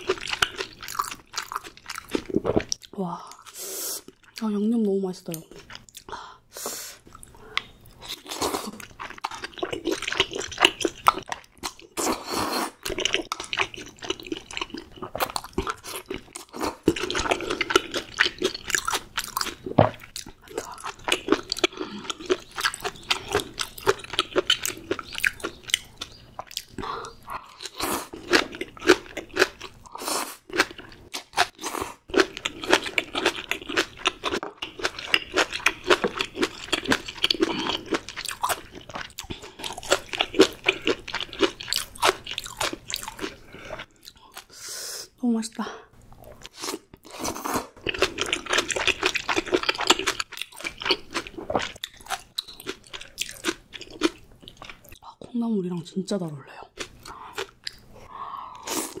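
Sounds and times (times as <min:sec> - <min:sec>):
crunching bites and chewing: 0:00.0 - 0:02.8, 0:12.8 - 0:26.8, 0:27.5 - 0:44.2, 0:46.4 - 0:55.0.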